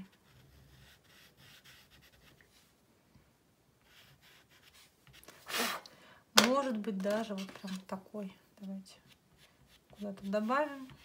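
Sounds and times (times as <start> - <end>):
pastel scratching on rough paper: 0.0 - 2.6, 8.6 - 11.0.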